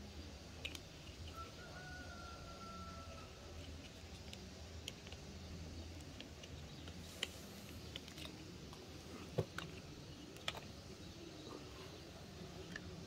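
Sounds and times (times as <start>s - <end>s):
plastic toys clicking: 0.6s - 1.4s, 3.6s - 10.8s.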